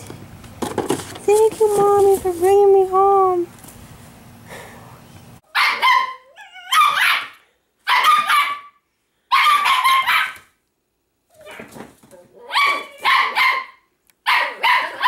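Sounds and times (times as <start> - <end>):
dogs barking high-pitched: 5.4 - 10.5, 12.4 - 15.0
dog whining: 5.7 - 7.3, 11.3 - 13.4.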